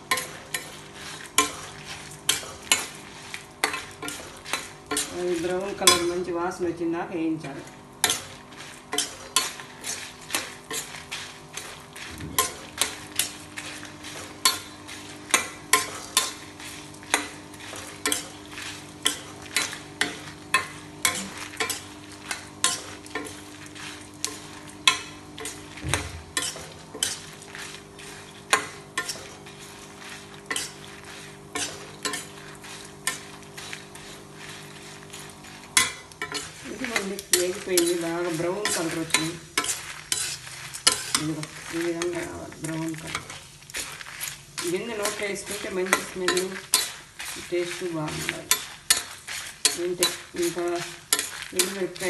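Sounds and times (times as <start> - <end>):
faint sizzle: 0.0 - 52.0
steady low hum: 0.0 - 52.0
metal spatula scraping iron pan: 0.1 - 6.3, 17.1 - 52.0.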